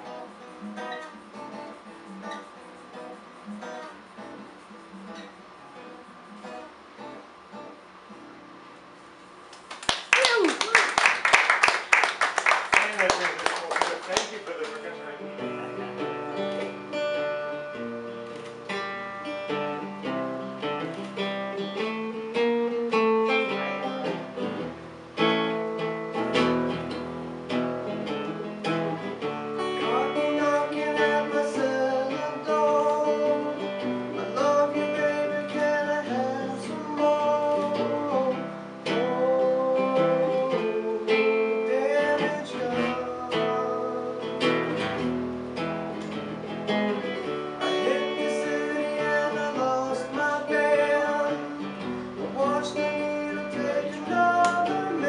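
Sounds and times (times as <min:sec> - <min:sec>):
acoustic guitar strummed and picked: 0:00.0 - 0:09.7, 0:14.0 - 0:55.0
man singing: 0:23.3 - 0:24.5, 0:28.4 - 0:45.1, 0:47.6 - 0:55.0.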